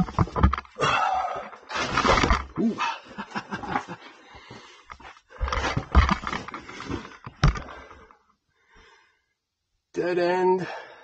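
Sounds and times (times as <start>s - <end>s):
person panting: 4.0s - 5.6s, 10.6s - 11.0s.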